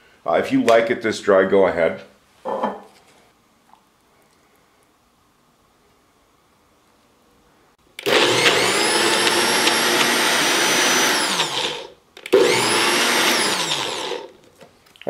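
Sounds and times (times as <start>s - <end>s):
blender whining: 8.0s - 14.4s.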